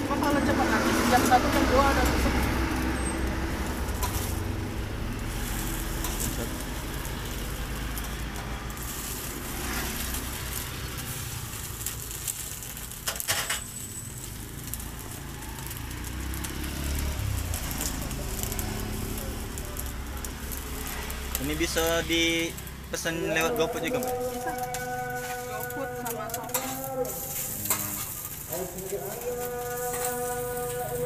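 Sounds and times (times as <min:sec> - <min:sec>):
meat sizzling on griddle: 0:00.0 - 0:31.0
metal turner scraping and clicking: 0:03.9 - 0:04.3, 0:05.5 - 0:06.4, 0:12.2 - 0:13.8, 0:23.5 - 0:30.8.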